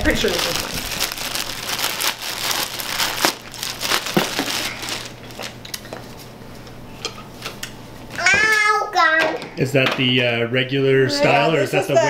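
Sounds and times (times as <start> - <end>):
plastic packaging crinkling: 0.0 - 6.3.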